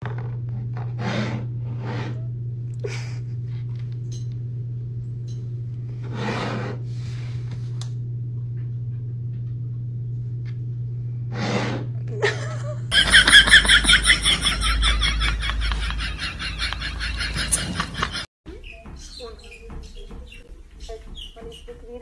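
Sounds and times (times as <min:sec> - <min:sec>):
steady low hum: 0:00.0 - 0:18.3
person snickering: 0:02.8 - 0:03.5, 0:12.1 - 0:18.3.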